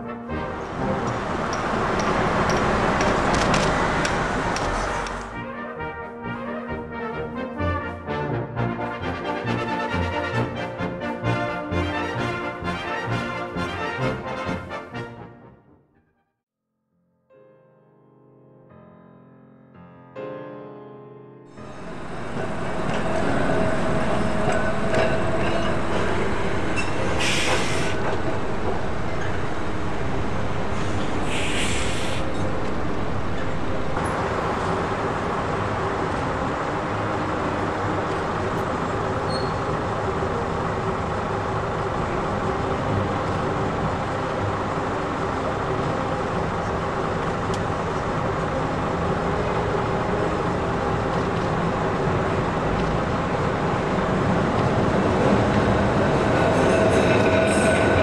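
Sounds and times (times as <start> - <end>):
tram running past: 0.0 - 5.6, 21.5 - 58.0
bus running: 0.0 - 15.4, 21.5 - 58.0
tram air hisses: 21.6 - 34.4.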